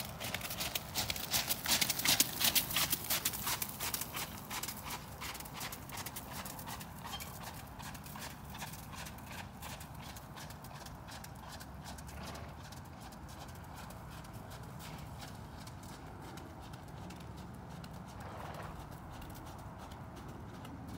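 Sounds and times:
horse hoofbeats on wet gravel: 0:00.0 - 0:20.9.

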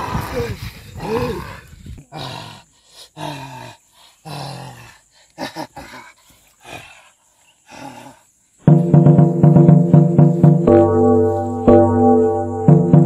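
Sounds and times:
man growling and roaring: 0:00.0 - 0:05.0.

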